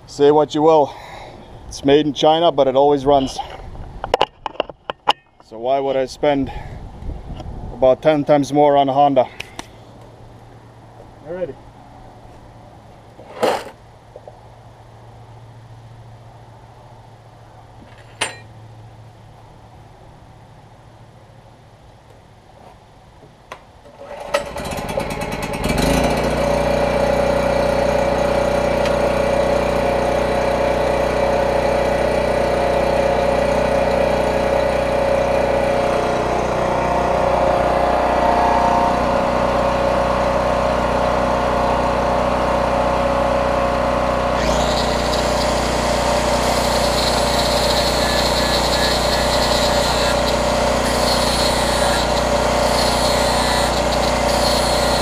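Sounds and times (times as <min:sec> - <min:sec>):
generator engine running: 0:23.9 - 0:55.0.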